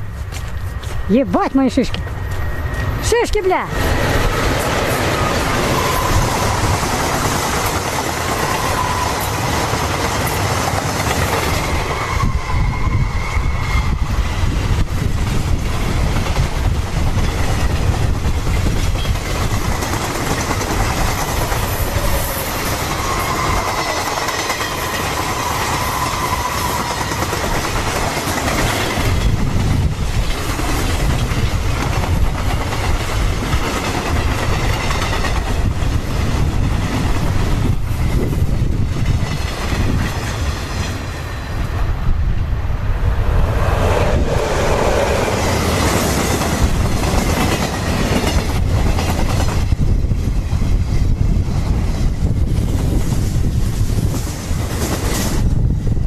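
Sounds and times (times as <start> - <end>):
train wagons rumbling: 0.0 - 56.0
high wheel squeal: 2.1 - 3.0, 5.2 - 6.8, 8.2 - 9.6, 11.6 - 14.2, 21.8 - 27.1
wheels clicking over rail joints: 4.2 - 12.1, 15.2 - 41.3.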